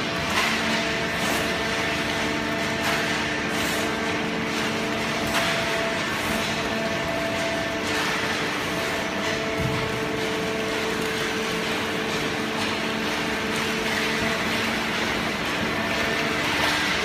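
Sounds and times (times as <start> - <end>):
chain conveyor running: 0.0 - 17.0.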